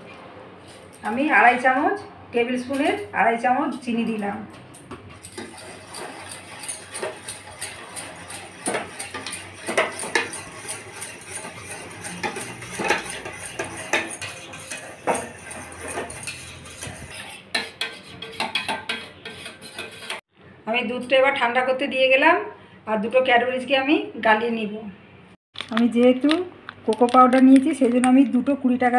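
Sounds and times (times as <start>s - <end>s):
whisk clinking against saucepan: 5.2s - 20.2s.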